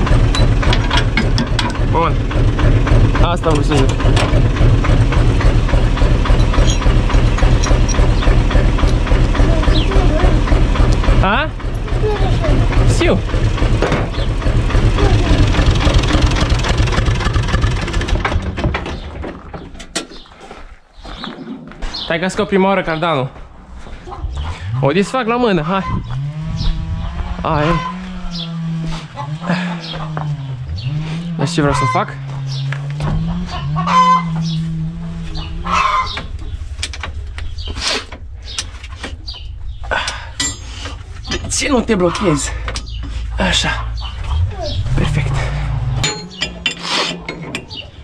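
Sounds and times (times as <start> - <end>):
diesel tractor engine idling: 0.0 - 19.1, 31.6 - 48.0
sharp clicks and knocks: 0.2 - 1.9, 3.4 - 5.2, 6.2 - 9.1, 36.1 - 39.5
chickens clucking: 33.1 - 34.7, 35.3 - 36.6, 40.6 - 45.0.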